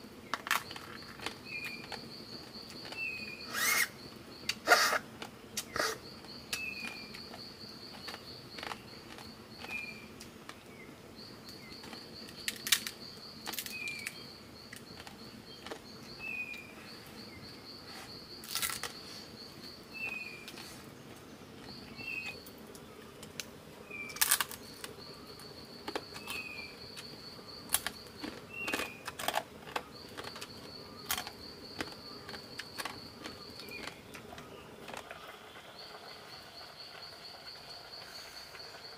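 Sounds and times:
bird chirping: 0.3 - 5.0, 5.6 - 20.8, 21.5 - 23.0, 23.8 - 38.6
pulsed insect-like trill: 0.6 - 5.0.

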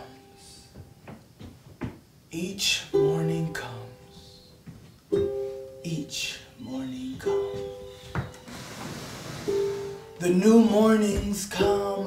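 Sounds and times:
plucked string instrument: 2.6 - 12.0.

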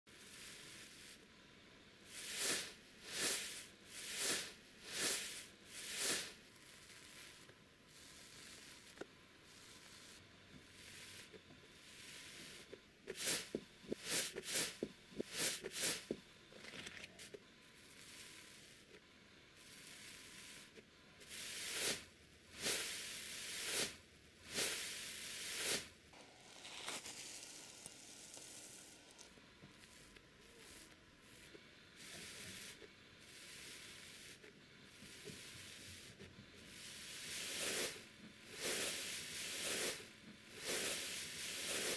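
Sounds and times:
slime hissing when pressed: 2.1 - 10.2, 10.8 - 16.2, 19.6 - 34.4, 36.7 - 41.9.

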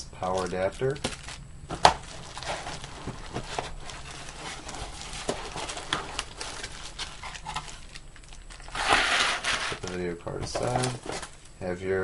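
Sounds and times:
bubble wrap crinkling: 0.2 - 11.6
cardboard box rustling: 0.3 - 11.5.

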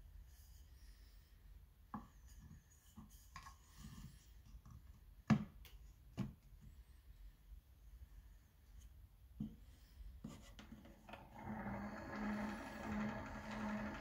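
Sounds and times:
disc rubbing and scraping: 10.5 - 14.0.

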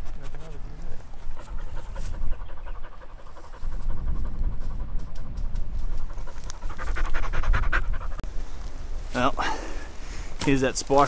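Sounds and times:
dog panting rapidly: 1.1 - 8.2.

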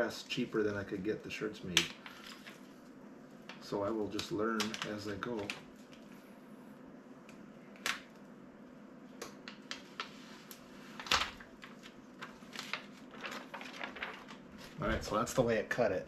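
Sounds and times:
vinyl sheet crinkling and peeling: 0.0 - 6.1, 9.4 - 15.5.

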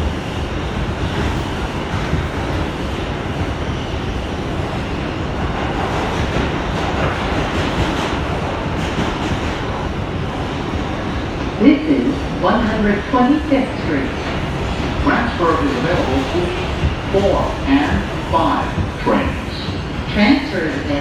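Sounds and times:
subway wheels rumbling on rails: 0.0 - 21.0.

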